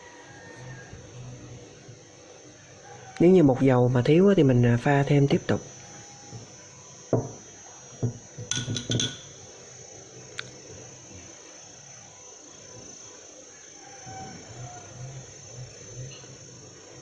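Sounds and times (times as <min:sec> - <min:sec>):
high-pitched hum: 0:00.0 - 0:17.0
metal spoon clinking glass bowl: 0:08.5 - 0:09.4.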